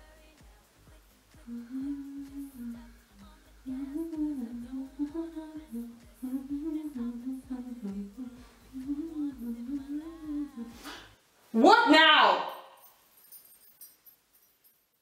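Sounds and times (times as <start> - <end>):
person humming a tune: 0.0 - 11.1.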